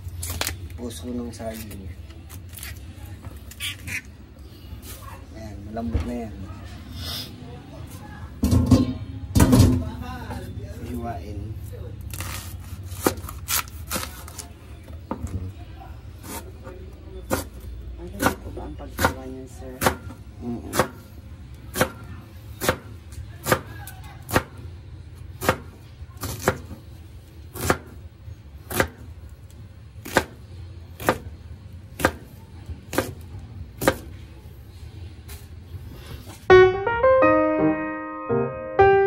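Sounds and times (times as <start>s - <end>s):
knife chopping on plastic board: 30.0s - 30.4s, 31.0s - 31.3s, 32.0s - 32.3s.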